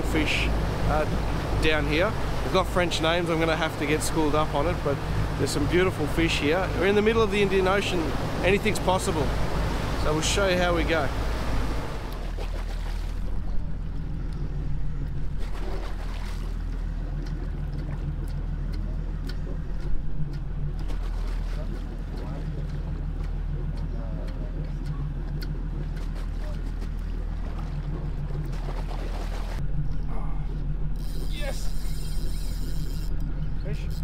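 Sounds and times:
wind and sea hiss: 0.0s - 14.2s, 28.6s - 34.0s
boat engine humming: 0.0s - 34.0s.

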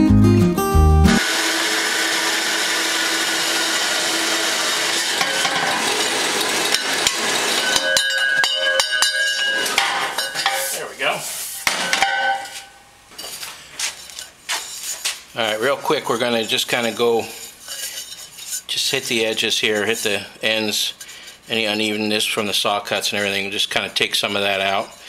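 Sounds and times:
bandsaw cutting metal tube: 1.2s - 10.8s
metal tube clinking: 6.7s - 10.8s.

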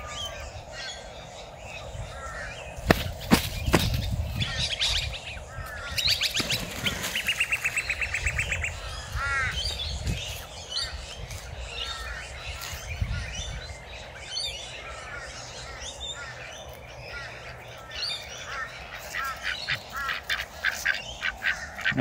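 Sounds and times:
birds chirping and calling: 0.0s - 22.0s
wings flapping: 2.9s - 4.2s, 6.2s - 7.8s.

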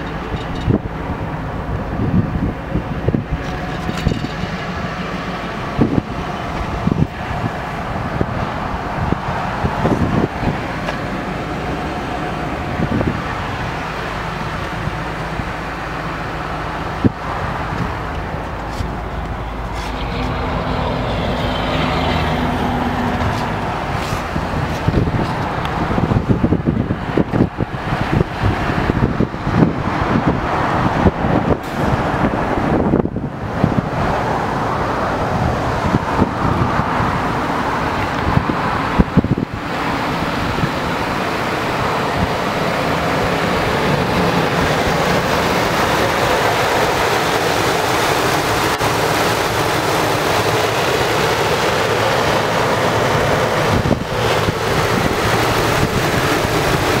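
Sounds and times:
engine idling: 0.0s - 57.0s
wind on microphone: 0.0s - 57.0s.

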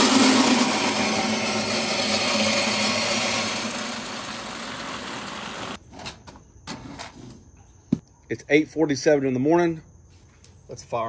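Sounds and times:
wood pellets pouring into hopper: 0.0s - 5.8s.

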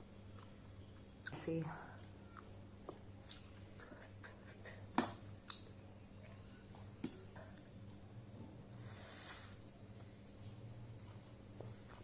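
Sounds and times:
steady low hum: 0.0s - 12.0s
chewing and mouth clicks: 0.2s - 1.4s, 2.3s - 4.4s, 5.0s - 5.7s, 11.0s - 12.0s.

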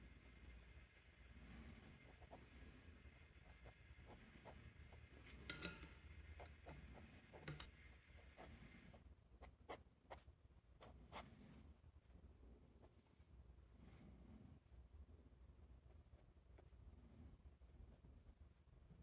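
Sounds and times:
pen nib scratching on paper: 0.2s - 5.0s.

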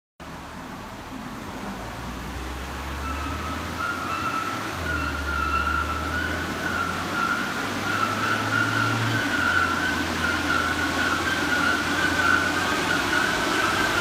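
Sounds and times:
car engine revving on rollers: 0.2s - 14.0s
high wavering whine: 2.9s - 14.0s.

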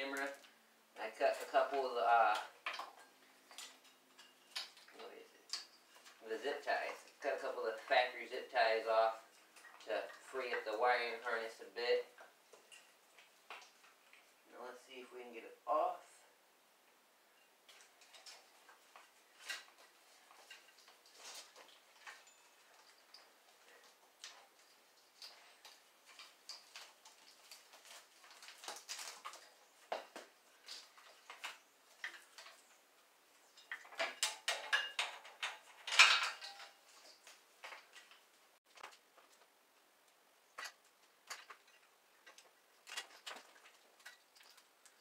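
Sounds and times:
metallic clicks and rattles of tools: 33.6s - 38.2s.

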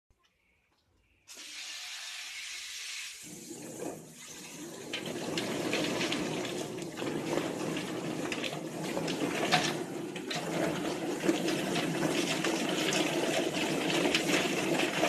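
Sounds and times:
spinning drum churning: 3.4s - 15.0s.

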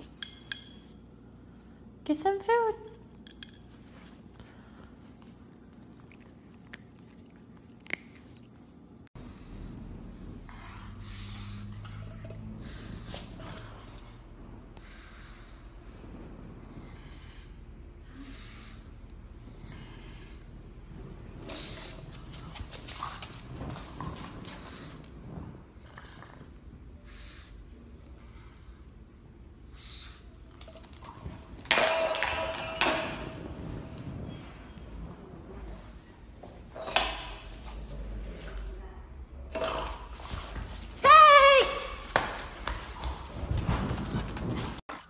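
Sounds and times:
metal dog bowl clanging on floor: 0.1s - 1.0s, 3.2s - 3.8s, 30.7s - 33.5s.

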